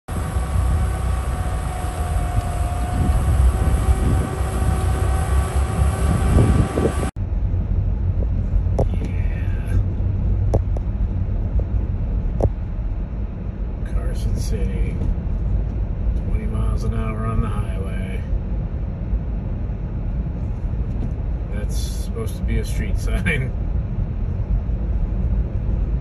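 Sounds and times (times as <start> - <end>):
snow blower droning: 0.0 - 7.2
vehicle driving rumble: 0.0 - 26.0.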